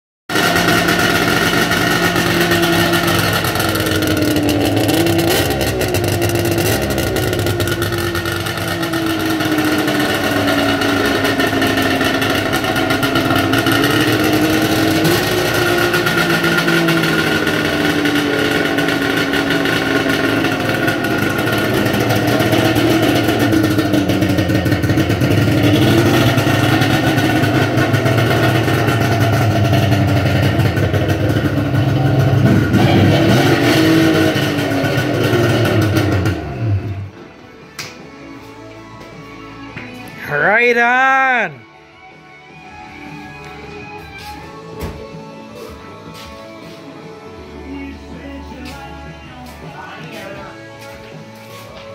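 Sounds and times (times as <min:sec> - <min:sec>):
snowmobile engine revving: 0:00.3 - 0:37.0.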